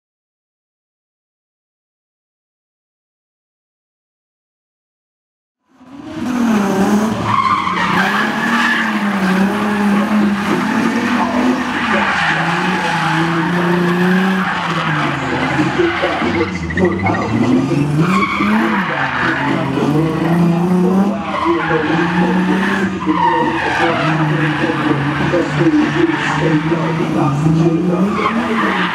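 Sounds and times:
car engine revving: 5.7s - 28.9s
tyres squealing on tarmac: 6.0s - 28.9s.

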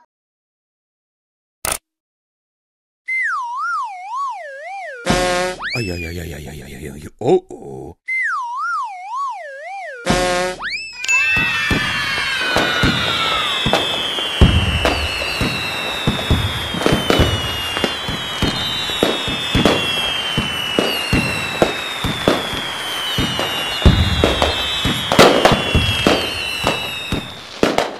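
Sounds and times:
fireworks whistling: 4.3s - 6.1s, 9.6s - 27.9s
fireworks bangs: 10.1s - 27.9s
fireworks crackling: 11.0s - 27.9s.

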